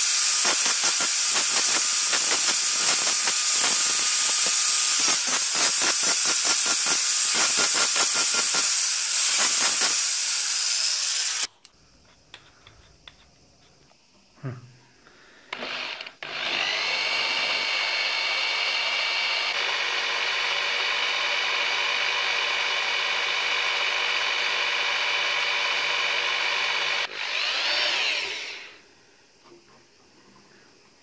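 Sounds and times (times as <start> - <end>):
electric drill whining: 0.0 - 11.5, 15.5 - 28.8.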